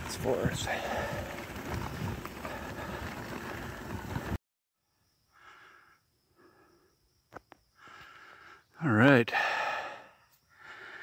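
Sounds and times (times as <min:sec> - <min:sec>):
bicycle tyres on gravel: 0:00.0 - 0:04.4
cyclist panting: 0:00.0 - 0:04.4, 0:05.3 - 0:07.1, 0:07.7 - 0:08.7, 0:09.3 - 0:11.0.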